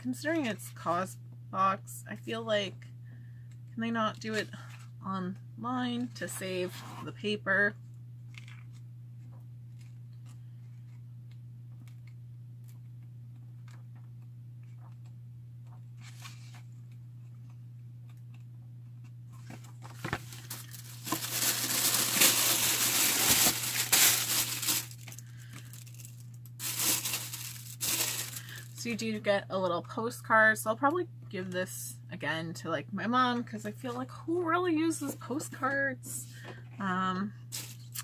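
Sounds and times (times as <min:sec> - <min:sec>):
low electrical hum: 0:00.0 - 0:38.0
paper packaging crinkling and tearing: 0:08.3 - 0:08.8, 0:19.4 - 0:28.8, 0:37.5 - 0:38.0
paper rustling: 0:19.4 - 0:28.7, 0:37.6 - 0:38.0.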